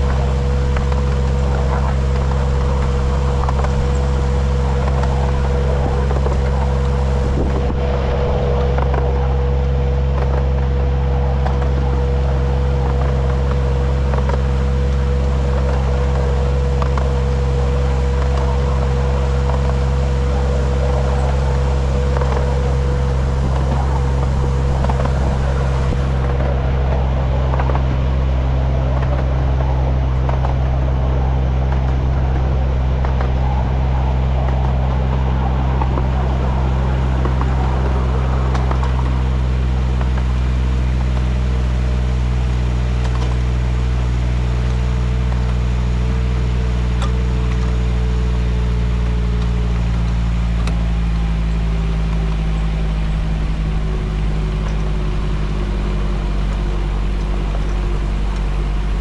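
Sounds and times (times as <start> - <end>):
engine droning: 0.0 - 59.0
high whine: 0.0 - 59.0.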